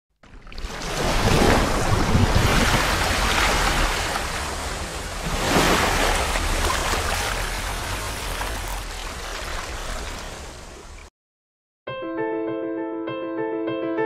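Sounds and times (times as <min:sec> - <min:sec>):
whooshing splashing water: 0:00.2 - 0:11.1.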